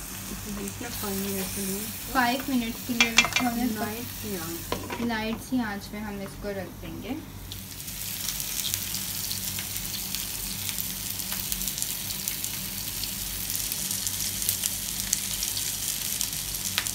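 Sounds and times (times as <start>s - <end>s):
low steady hum: 0.0s - 7.8s
food sizzling in oil: 0.0s - 16.9s.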